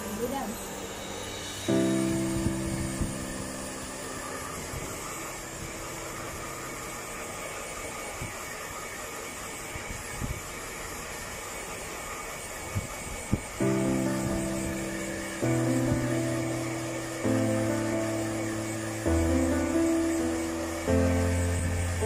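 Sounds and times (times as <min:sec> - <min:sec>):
hair dryer blowing air: 0:00.0 - 0:22.0.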